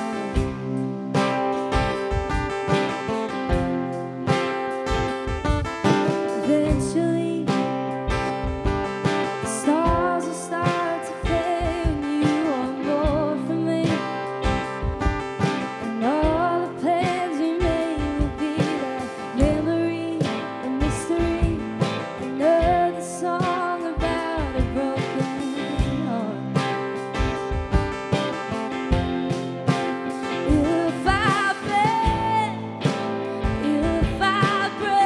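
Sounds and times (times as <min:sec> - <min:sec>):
strummed acoustic guitar: 0:00.0 - 0:35.0
woman singing: 0:06.1 - 0:08.2, 0:09.3 - 0:14.6, 0:15.8 - 0:26.9, 0:30.2 - 0:35.0.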